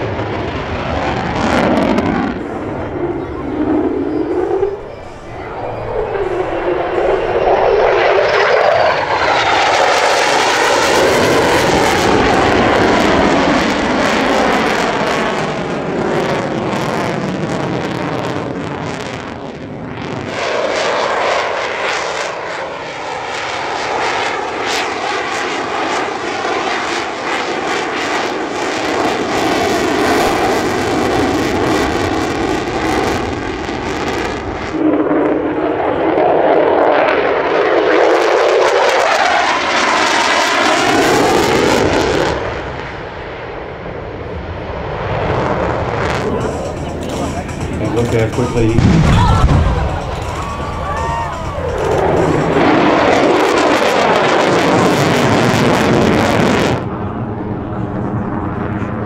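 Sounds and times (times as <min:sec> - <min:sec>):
fighter jet engine roaring overhead: 0:00.0 - 0:59.0.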